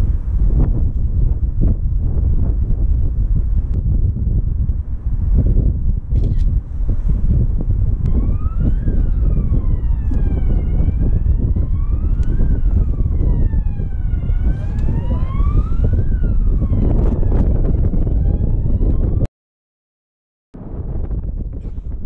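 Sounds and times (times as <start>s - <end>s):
wind noise on microphone: 0.0s - 19.3s, 20.6s - 22.0s
siren wailing: 8.1s - 19.3s.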